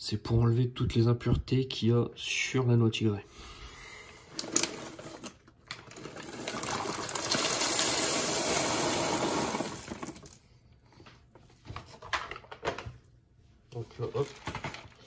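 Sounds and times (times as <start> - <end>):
nuts pattering into colander: 4.4 - 10.4.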